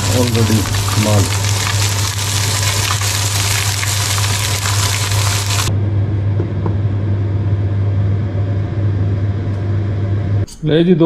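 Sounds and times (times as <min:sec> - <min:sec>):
fish sizzling in a pan: 0:00.0 - 0:05.7.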